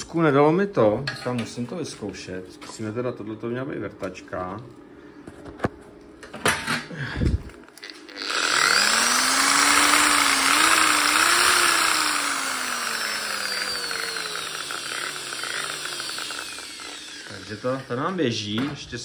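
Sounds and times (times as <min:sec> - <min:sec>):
electric drill motor whine: 0:07.8 - 0:18.2.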